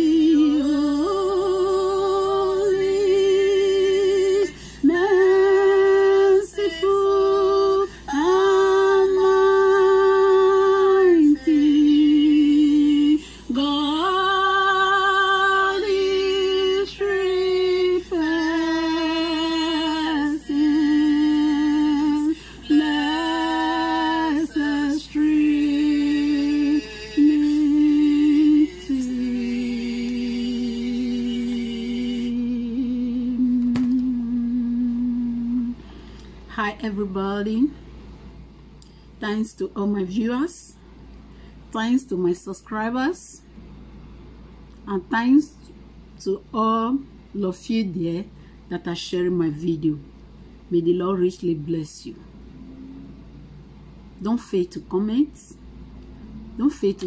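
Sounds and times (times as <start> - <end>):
woman singing unaccompanied: 0.0 - 37.8, 39.2 - 40.8, 56.3 - 57.0.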